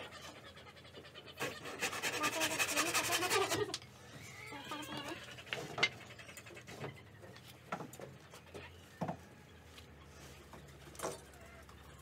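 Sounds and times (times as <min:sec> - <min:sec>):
faint animal calls: 0:00.0 - 0:07.5.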